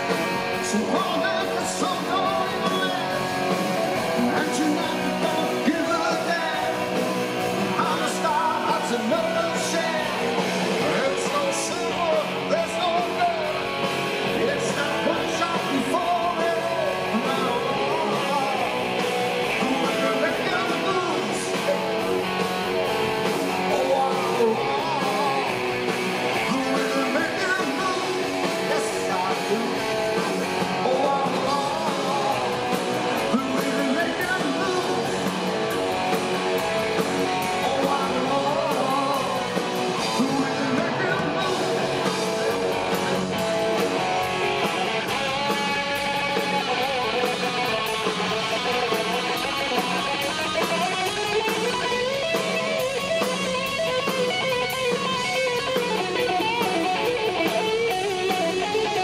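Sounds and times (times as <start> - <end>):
man singing: 0.0 - 22.0, 23.5 - 35.6, 37.2 - 42.3
drums: 0.0 - 59.0
electric guitars: 0.0 - 59.0.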